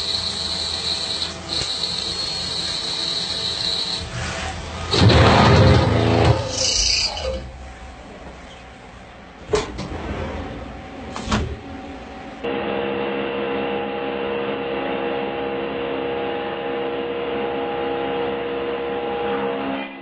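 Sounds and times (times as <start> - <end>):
lathe turning metal bar: 0.0 - 8.8
milling cutter whining: 0.0 - 8.8.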